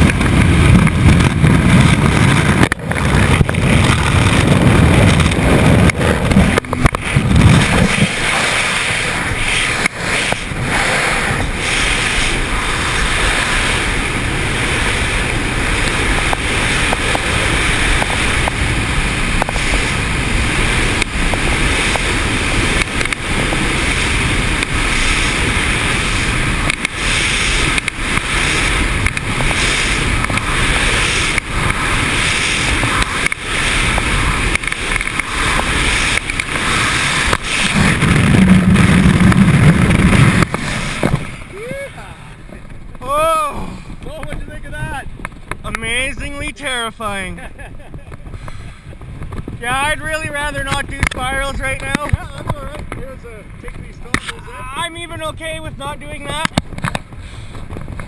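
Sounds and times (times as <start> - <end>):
aircraft low rumble: 0.0 - 58.0
wind rushing over microphone: 0.0 - 58.0.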